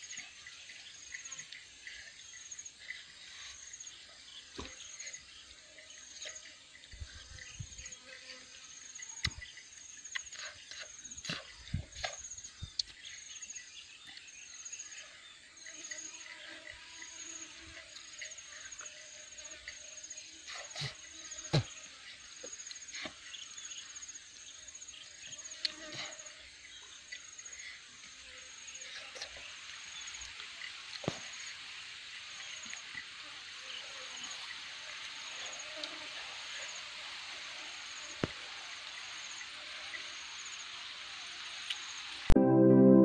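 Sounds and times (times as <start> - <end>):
insects trilling: 0.0 - 42.3
clicks and smacks of eating: 10.1 - 13.0.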